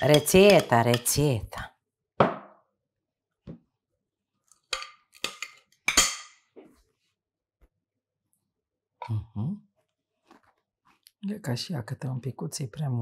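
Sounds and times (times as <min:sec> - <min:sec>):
kitchen utensils and dishes clinking: 0:00.0 - 0:01.4, 0:04.7 - 0:06.5.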